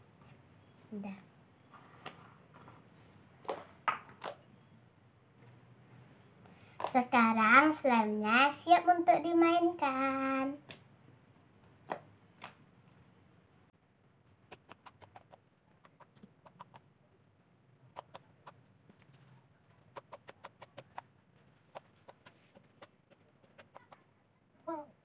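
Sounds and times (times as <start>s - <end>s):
slime kneaded with sticky clicks: 14.4s - 16.8s.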